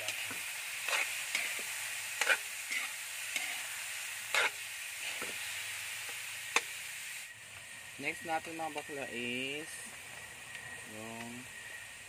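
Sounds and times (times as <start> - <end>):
food sizzling in oil: 0.0 - 12.0
spatula scraping a pan: 0.8 - 3.7, 4.3 - 5.4.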